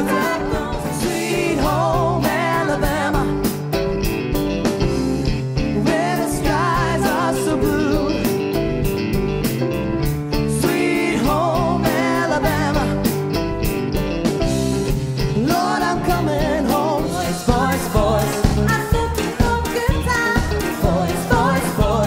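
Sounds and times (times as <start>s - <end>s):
live pop-rock band playing: 0.0s - 22.0s
person singing with vibrato: 5.8s - 8.4s, 15.3s - 22.0s.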